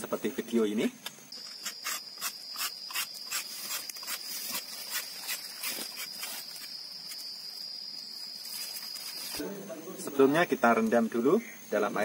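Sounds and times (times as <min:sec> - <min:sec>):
insects high-pitched whine: 0:00.0 - 0:12.0
insect clicking chirps: 0:01.1 - 0:09.4.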